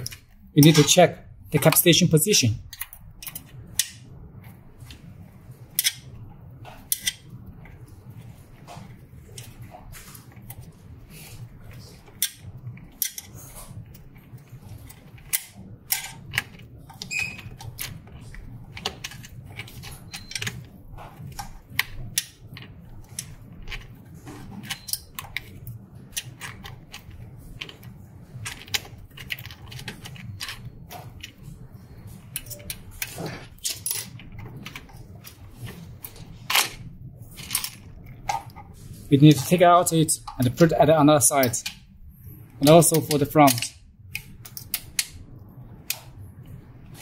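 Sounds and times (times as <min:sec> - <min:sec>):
low steady hum: 0:00.0 - 0:47.0
plastic parts clicking: 0:42.6 - 0:45.2.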